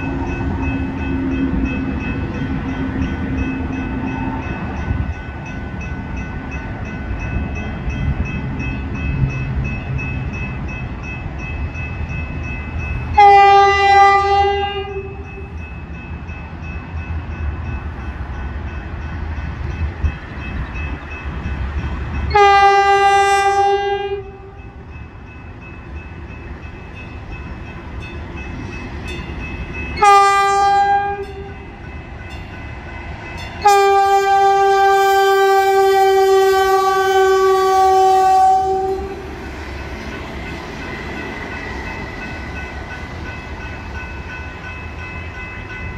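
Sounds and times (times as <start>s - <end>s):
train horn blasts: 13.2s - 15.5s, 22.3s - 24.6s, 30.0s - 31.6s, 33.6s - 39.3s.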